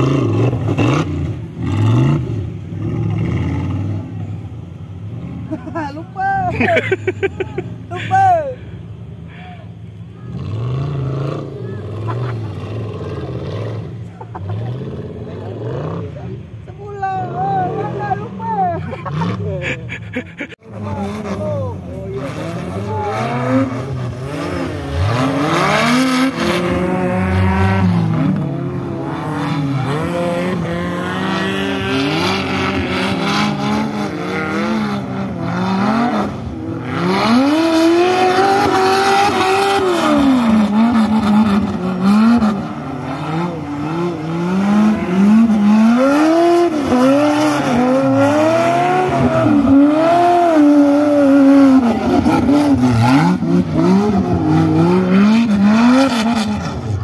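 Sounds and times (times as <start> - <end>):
buggy engine revving: 0.0 - 57.0.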